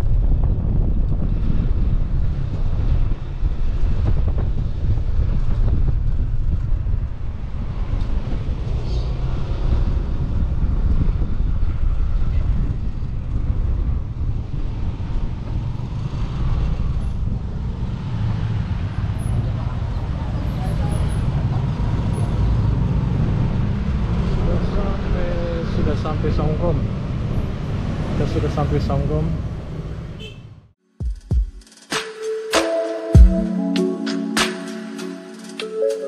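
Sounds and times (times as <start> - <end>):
wind buffeting microphone: 0.0 - 25.9
motorcycle running: 0.0 - 28.0.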